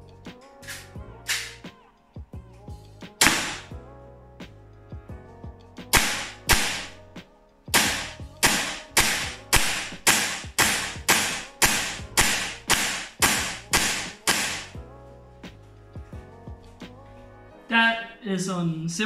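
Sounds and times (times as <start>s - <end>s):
airsoft pistol shots: 3.2s - 3.7s, 6.0s - 6.9s, 7.8s - 14.7s.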